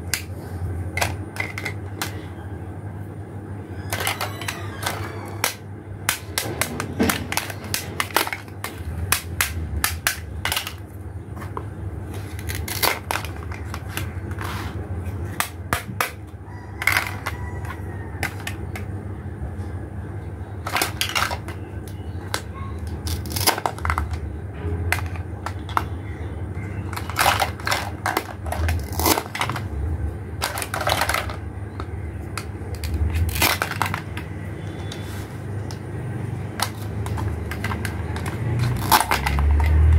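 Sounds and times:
steady low hum: 0:00.0 - 0:39.9
plastic toy pieces clattering: 0:01.0 - 0:02.3, 0:03.9 - 0:10.9, 0:12.3 - 0:14.6, 0:16.8 - 0:18.9, 0:20.6 - 0:24.2, 0:24.9 - 0:25.9, 0:26.8 - 0:29.7, 0:30.4 - 0:34.9, 0:36.5 - 0:39.9.

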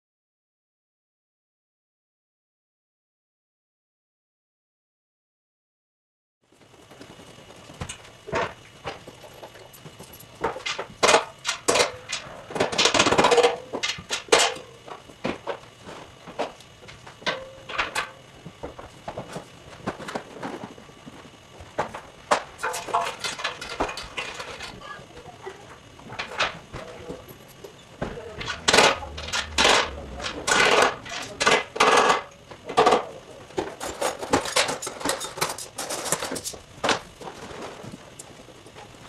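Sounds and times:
lighting gear knocking and clattering: 0:26.2 - 0:32.2.

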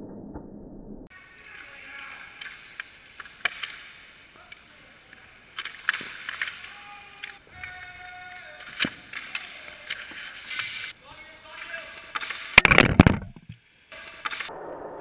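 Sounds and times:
skate blades scraping ice: 0:01.2 - 0:12.6
hockey stick hitting puck: 0:01.3 - 0:10.9, 0:11.5 - 0:14.5.

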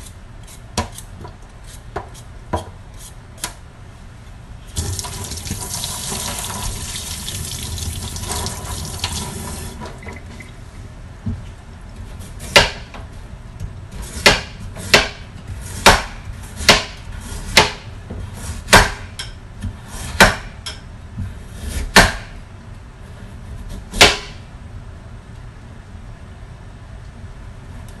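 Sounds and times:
knife chopping on wooden board: 0:00.8 - 0:01.0, 0:12.4 - 0:12.9, 0:14.0 - 0:17.9, 0:18.7 - 0:19.2, 0:20.0 - 0:20.6, 0:21.6 - 0:22.4, 0:23.6 - 0:24.4.

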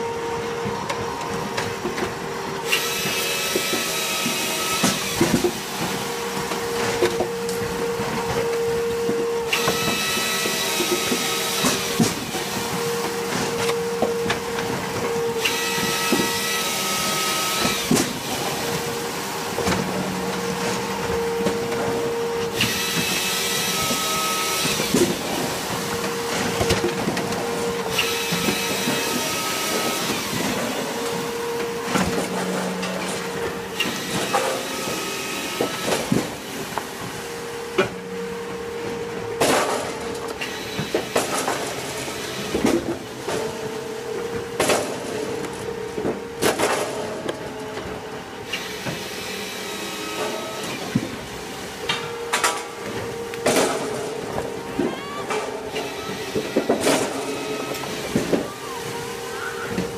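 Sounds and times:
machine hydraulics humming: 0:00.0 - 0:59.9
saw cutting through log: 0:01.9 - 0:37.0, 0:48.4 - 0:51.8, 0:53.4 - 0:59.9
firewood pieces clattering down: 0:55.3 - 0:58.4.

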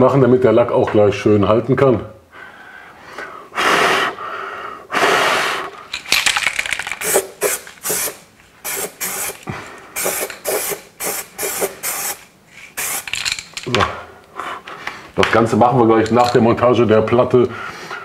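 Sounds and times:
aerosol spray hissing: 0:07.0 - 0:13.2.

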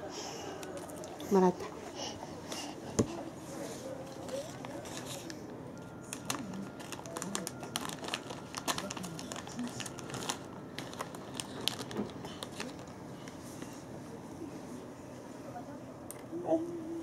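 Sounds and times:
plastic packet crinkling: 0:06.0 - 0:13.0.

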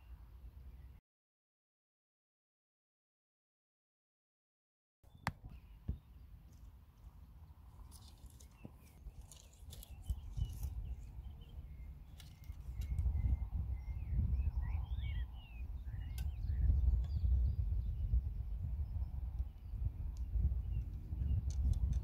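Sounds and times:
small birds chirping: 0:05.0 - 0:22.0
wind rumbling on microphone: 0:05.4 - 0:22.0.

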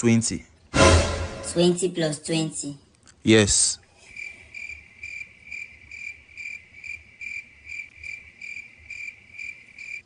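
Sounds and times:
crickets chirping: 0:03.8 - 0:10.0.

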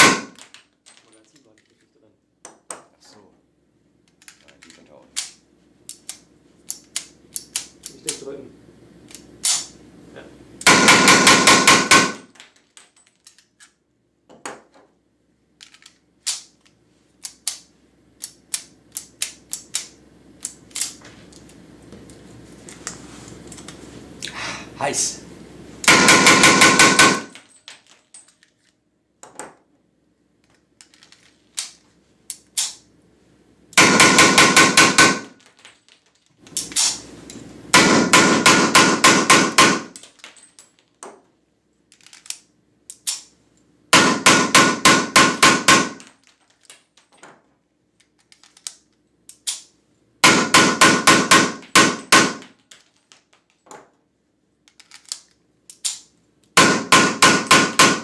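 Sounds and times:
blank pistol shots in rapid strings: 0:10.7 - 0:12.2, 0:25.9 - 0:27.3.

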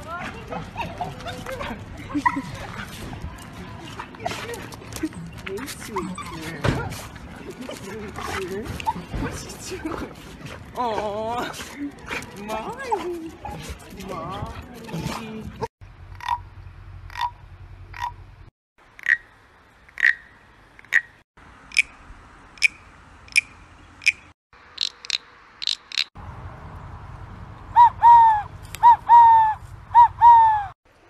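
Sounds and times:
wooden frog croaks: 0:16.1 - 0:16.4, 0:17.1 - 0:18.2, 0:18.9 - 0:19.3, 0:19.9 - 0:21.9, 0:24.8 - 0:26.1
wooden whistle call: 0:27.7 - 0:30.7.

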